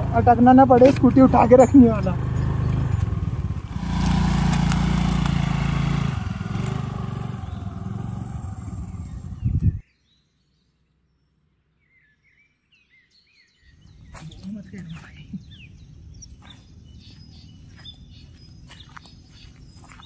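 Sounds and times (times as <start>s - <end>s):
scooter engine running: 0.0s - 9.8s
faint bird chirps: 7.4s - 20.0s.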